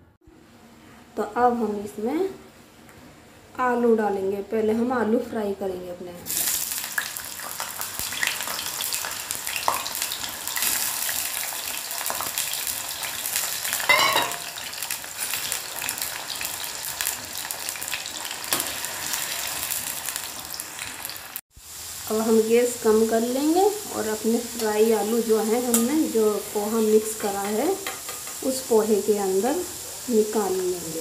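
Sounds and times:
potatoes sizzling in hot oil: 6.3 - 31.0.

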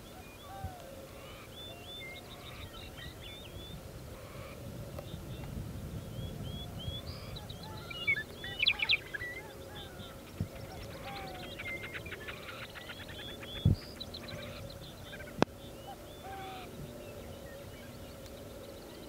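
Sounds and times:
small birds chirping: 4.4 - 19.0.

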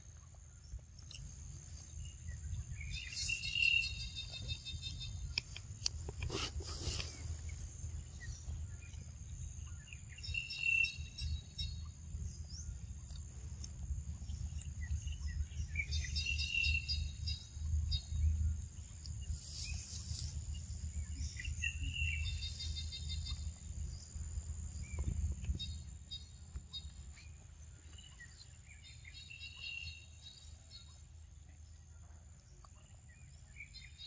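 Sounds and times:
low rumble: 11.0 - 28.8.

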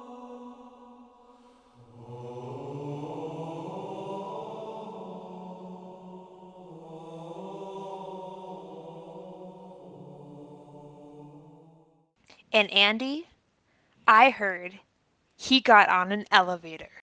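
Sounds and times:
low chanted vocal drone: 0.0 - 11.8.

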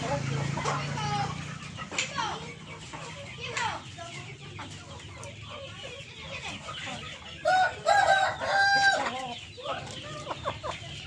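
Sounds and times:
chickens clucking: 0.0 - 11.0
rooster crowing: 7.4 - 9.2.

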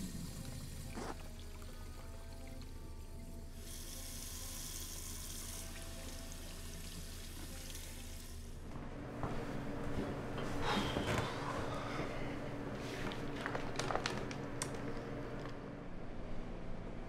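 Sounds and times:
sink tap water running: 0.0 - 8.5.

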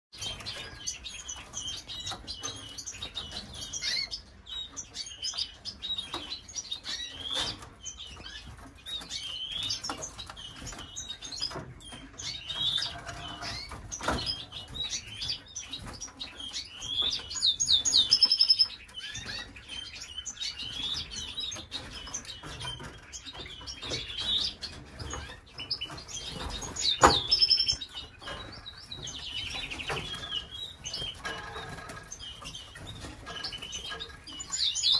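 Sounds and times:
canaries chirping and trilling: 0.1 - 34.9.

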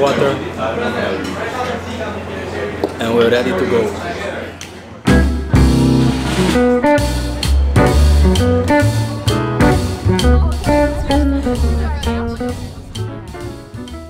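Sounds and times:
music with strong bass line: 5.1 - 14.0.

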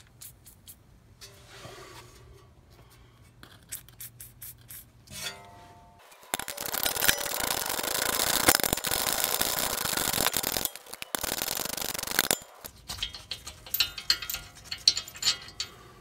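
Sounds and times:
ratchet clicking rapidly: 6.3 - 14.4.

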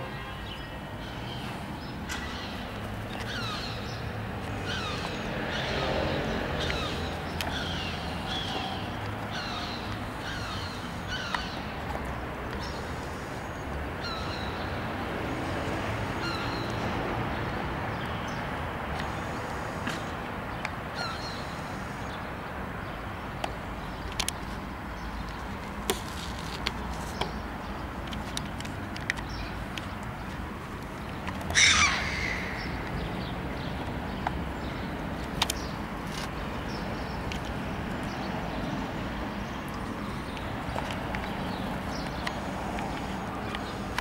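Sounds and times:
gulls calling: 30.9 - 33.7.

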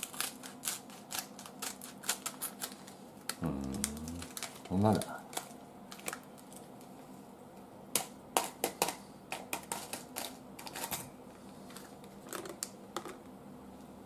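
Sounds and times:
sachet clicks and crinkles: 0.0 - 6.9.

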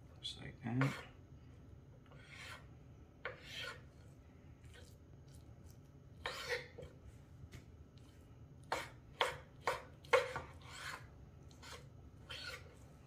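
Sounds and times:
knife slicing raw meat on board: 6.2 - 6.9, 8.6 - 12.8.

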